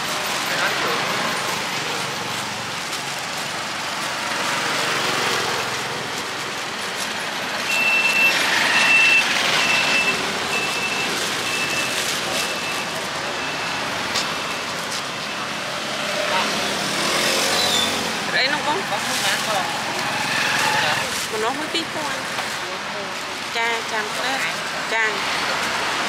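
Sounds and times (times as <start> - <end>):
street traffic noise: 0.0 - 26.0
vehicle reversing alarm beeps: 7.6 - 15.6.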